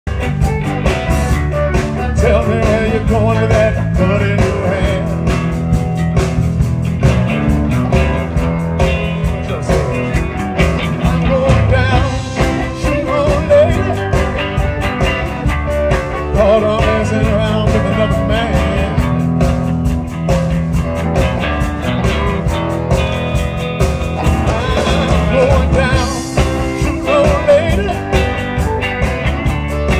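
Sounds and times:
bass guitar: 0:00.0 - 0:29.9
electric guitar lead: 0:00.0 - 0:29.9
steady drumbeat: 0:00.0 - 0:29.9.

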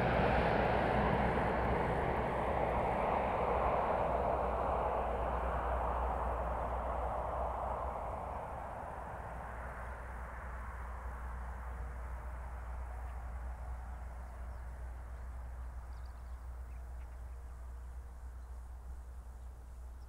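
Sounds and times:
distant aircraft engine drone: 0:00.0 - 0:20.0
faint bird chirps: 0:12.2 - 0:20.0.

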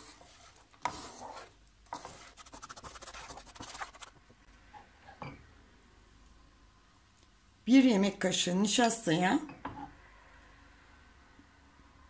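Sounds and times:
wooden spatula scraping a pan: 0:00.0 - 0:05.2.

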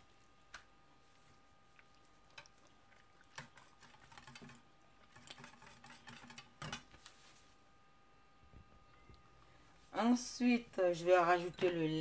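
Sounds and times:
whisk scraping a steel bowl: 0:03.4 - 0:06.8.

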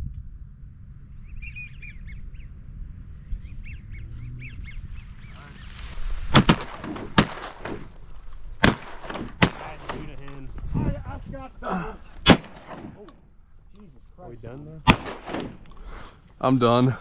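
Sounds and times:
ducks whistling: 0:01.2 - 0:02.6, 0:03.3 - 0:07.9
shotgun blasts: 0:06.3 - 0:10.5, 0:12.2 - 0:13.3, 0:14.8 - 0:16.1.

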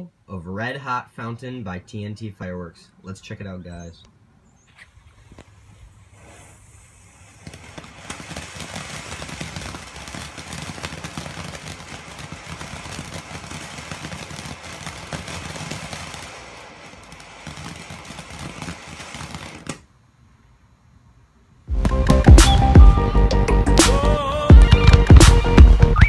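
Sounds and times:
firework fountain hissing and crackling: 0:04.6 - 0:19.9, 0:21.7 - 0:23.0, 0:23.7 - 0:26.0.

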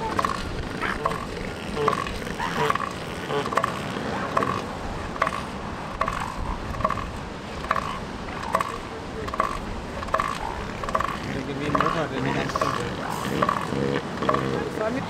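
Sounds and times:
elephant seal pulsed threat call: 0:00.0 - 0:11.2.

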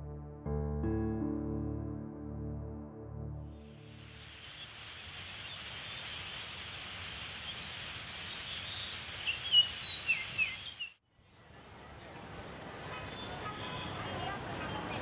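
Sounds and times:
steady background hiss: 0:03.8 - 0:10.5
small birds chirping: 0:03.9 - 0:11.0.

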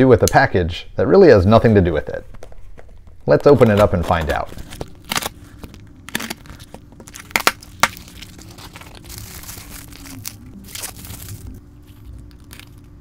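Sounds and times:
bubble wrap crinkling: 0:02.5 - 0:13.0.

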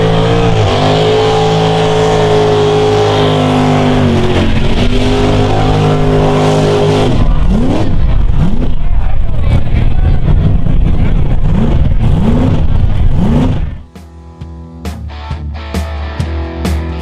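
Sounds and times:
truck engine revving: 0:00.0 - 0:15.8.

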